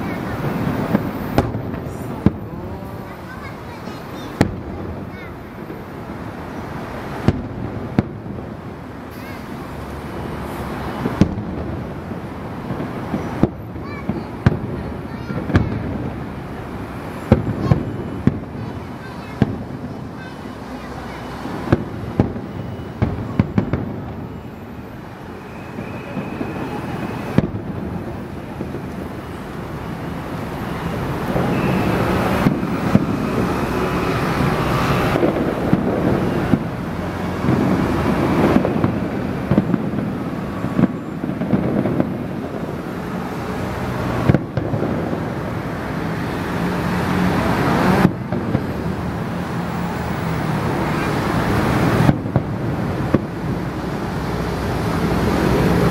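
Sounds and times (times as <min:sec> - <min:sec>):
continuous fireworks din: 0:00.0 - 0:55.9
firework shells bursting: 0:25.2 - 0:45.6.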